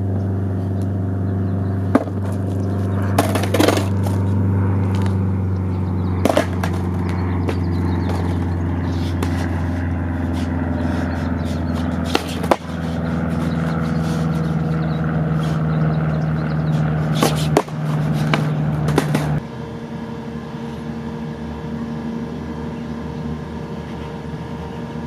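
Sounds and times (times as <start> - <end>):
steady low hum: 0.0 - 25.0
skateboard clacks on concrete: 3.2 - 4.2, 6.2 - 8.4, 11.7 - 13.7, 17.1 - 19.4.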